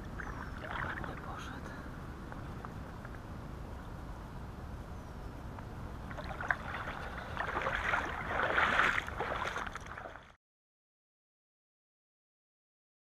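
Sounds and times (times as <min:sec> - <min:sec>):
wind and water rumble: 0:00.0 - 0:10.4.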